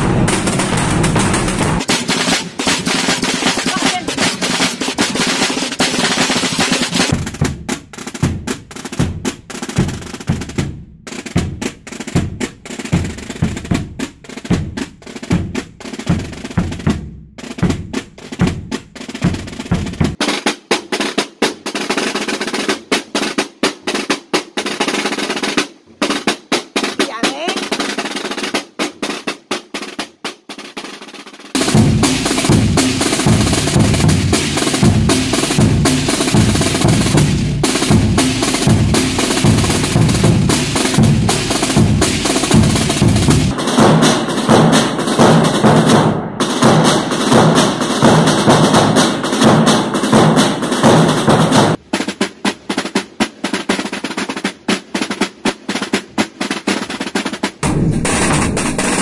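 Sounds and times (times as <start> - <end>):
bass drum beats: 0.0 - 5.1, 7.1 - 20.2, 31.6 - 49.0, 57.6 - 59.0
snare drum rolls: 0.0 - 59.0.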